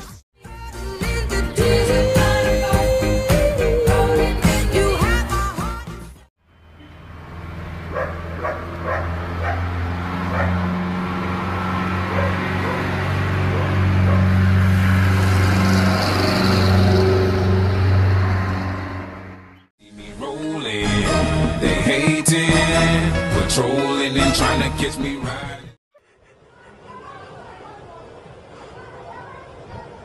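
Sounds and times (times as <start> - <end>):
low engine hum: 6.6 - 19.6
dog barking: 7.9 - 9.7, 10.3 - 10.6, 12.0 - 14.3.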